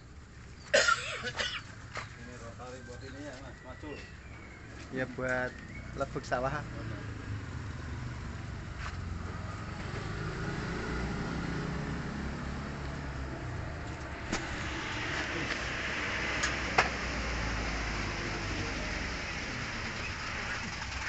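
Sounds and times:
low rumble: 13.0s - 20.8s.

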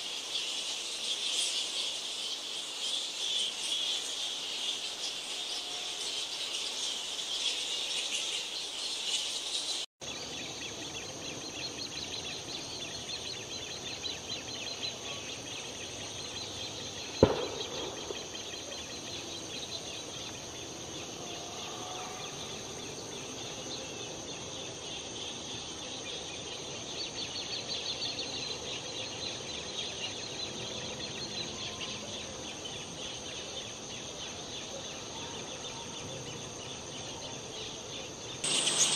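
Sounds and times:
steady high hiss: 0.0s - 21.1s, 37.0s - 38.9s
fruit bats chattering and squeaking: 38.4s - 38.9s.

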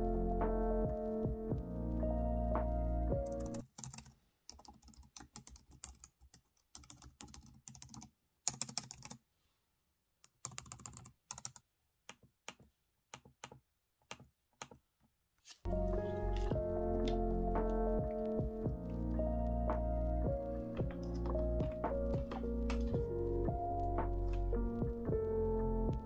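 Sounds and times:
lo-fi music: 0.0s - 3.6s, 15.7s - 26.0s.

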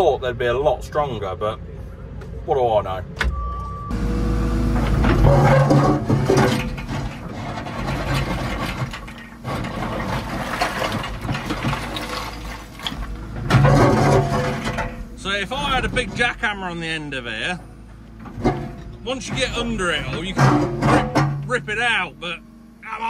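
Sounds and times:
excavator engine and hydraulics: 0.0s - 23.0s
concrete chunks knocking and scraping: 5.0s - 16.5s, 18.2s - 21.8s.

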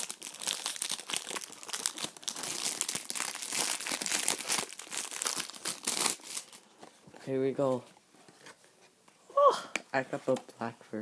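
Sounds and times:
plastic shrink wrap crinkling: 0.0s - 6.9s.

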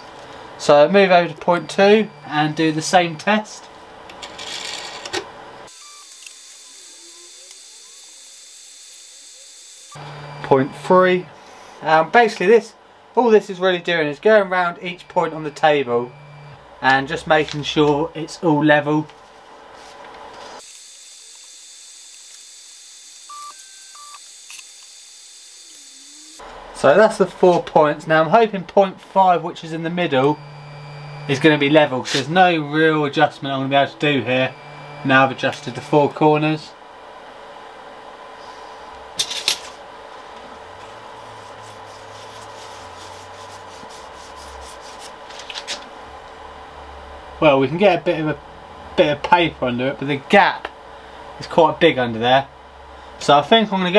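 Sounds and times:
faint steady hum and hiss: 0.0s - 6.3s, 10.0s - 20.6s, 26.4s - 53.9s
printer buzzer beep: 1.3s - 2.9s, 5.7s - 10.9s, 14.7s - 16.6s, 23.2s - 25.1s, 30.1s - 31.8s, 34.1s - 36.0s
paper rustling and rubbing: 41.2s - 45.9s.

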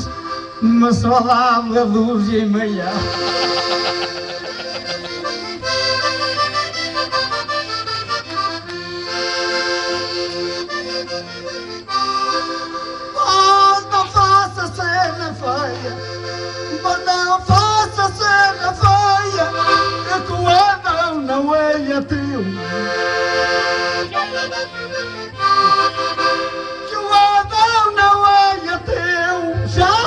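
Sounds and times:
accordion playing: 0.0s - 30.0s
person singing: 1.0s - 5.2s.

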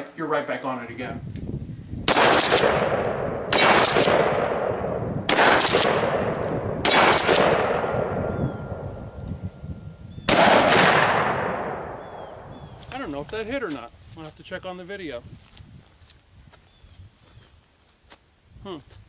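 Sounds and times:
gunshot echo: 2.1s - 8.8s, 10.2s - 12.5s
shotgun shots: 2.1s - 8.8s, 10.3s - 12.5s.

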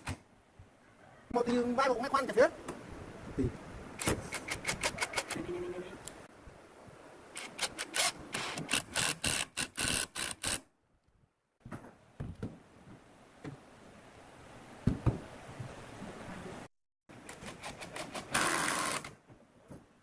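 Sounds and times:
drill driving a screw: 7.4s - 10.6s, 18.1s - 19.1s
thump: 14.8s - 15.2s.

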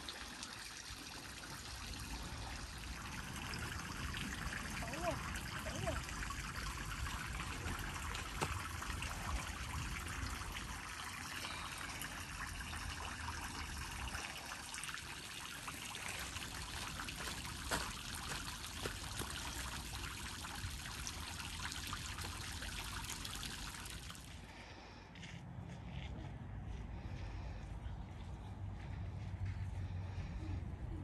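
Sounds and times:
fountain water splashing: 0.0s - 24.2s.

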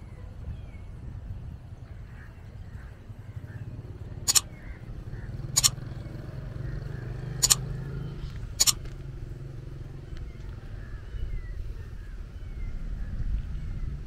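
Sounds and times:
vehicle engine hum: 0.0s - 14.0s
sharp clicks: 4.3s - 4.5s, 5.6s - 5.8s, 7.4s - 7.6s, 8.6s - 9.0s.

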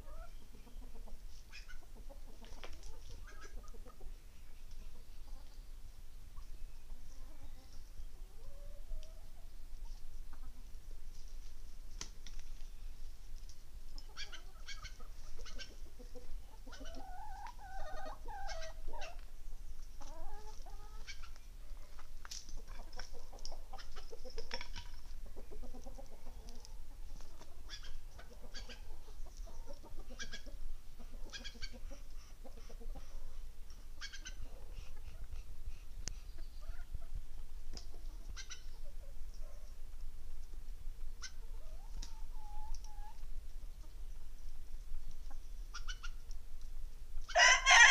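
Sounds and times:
chickens clucking: 0.0s - 47.9s
drawn-out rooster call: 47.3s - 47.9s.

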